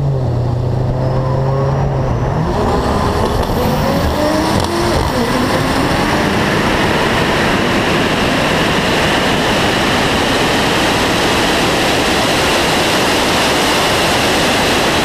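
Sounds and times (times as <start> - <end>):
loud wind rush: 0.0 - 15.0.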